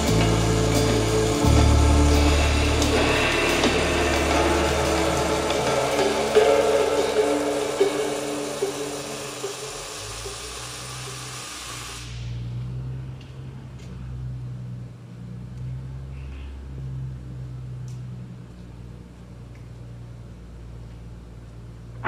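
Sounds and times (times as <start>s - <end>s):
low steady hum: 0.0s - 10.3s
welding arc crackling and hissing: 0.0s - 12.4s.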